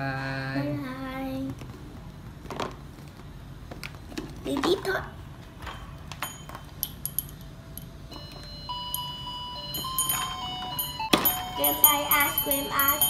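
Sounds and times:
electronic toy melody: 8.1 - 13.0.

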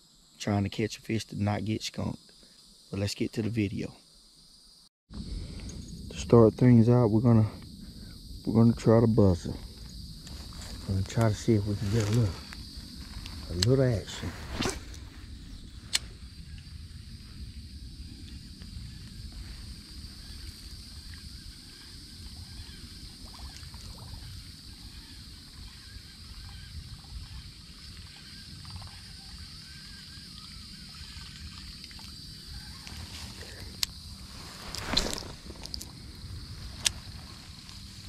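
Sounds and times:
insects droning: 0.0 - 38.0
soft handling noises: 34.2 - 35.9.

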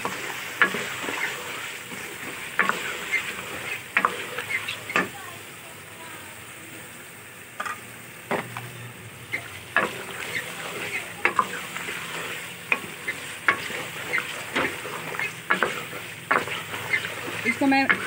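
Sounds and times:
faint frying sizzle: 0.0 - 18.0
spoon scraping and knocking pot: 9.3 - 18.0.

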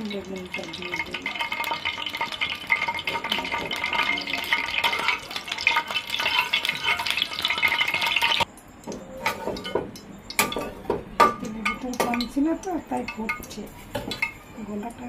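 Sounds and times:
oil sizzling in frying pan: 0.0 - 8.5
metal spatula spreading oil: 0.6 - 8.4.

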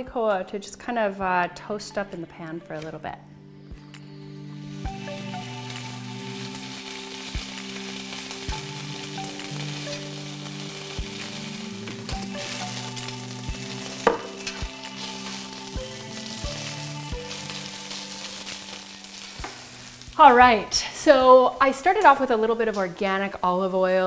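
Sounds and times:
seeds sizzling in hot oil: 4.1 - 24.0.

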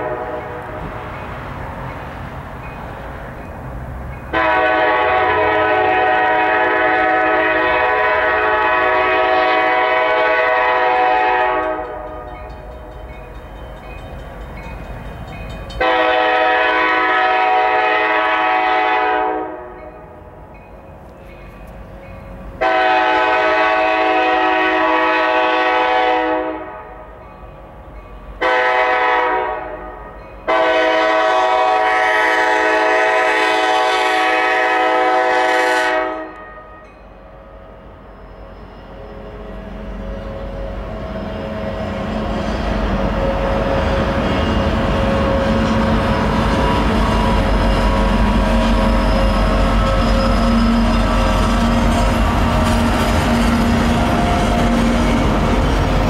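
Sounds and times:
locomotive air horn blasts: 0.0 - 0.8, 4.3 - 12.2, 15.8 - 19.8, 22.6 - 27.0, 28.4 - 36.9
train rumble: 0.0 - 56.0.

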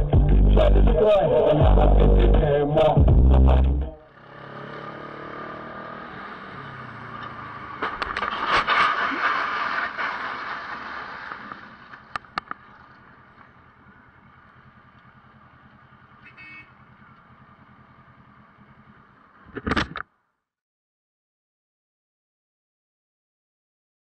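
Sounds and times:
motorcycle scraping along asphalt: 4.0 - 20.0
low engine rumble: 6.2 - 19.6.

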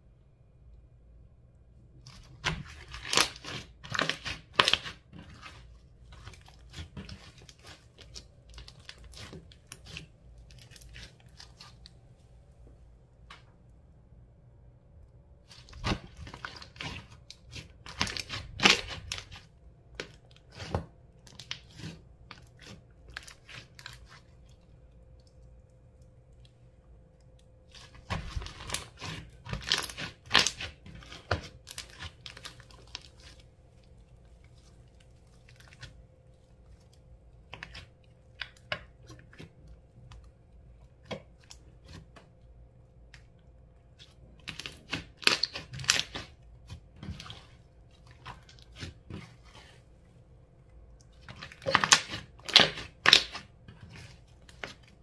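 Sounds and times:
slime crackling and popping: 2.0 - 11.9, 15.5 - 24.4, 27.7 - 36.0, 44.0 - 49.7, 51.1 - 54.8.

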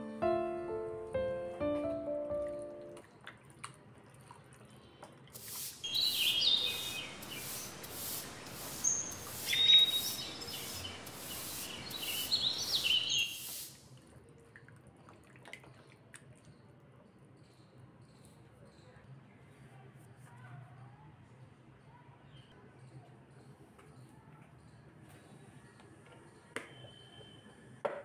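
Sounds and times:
pulsing rushing hiss: 5.4 - 13.8
bird chirps: 5.8 - 13.6.

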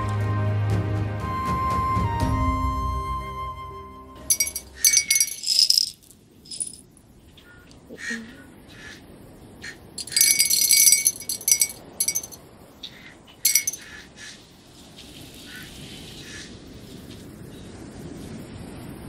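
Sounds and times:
small pieces clinking into glass: 4.3 - 6.8, 10.0 - 12.4, 13.5 - 13.8.

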